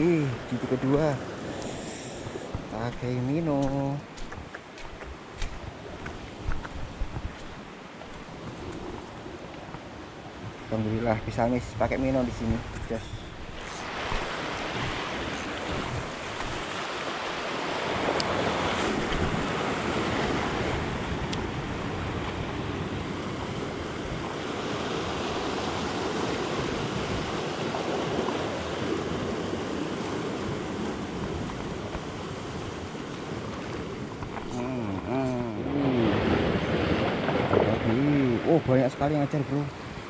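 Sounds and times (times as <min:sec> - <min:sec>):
sea waves washing over rocks: 0:00.0 - 0:40.0
wind buffeting microphone: 0:02.2 - 0:38.6.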